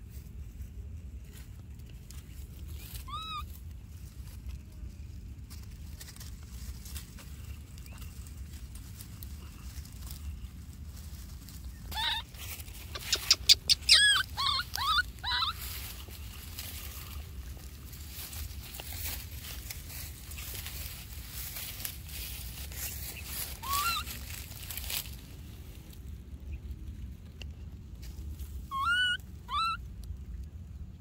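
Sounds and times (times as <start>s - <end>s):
baby monkey crying squeals: 2.7s - 3.5s, 11.8s - 16.0s, 23.2s - 24.4s, 28.7s - 29.8s.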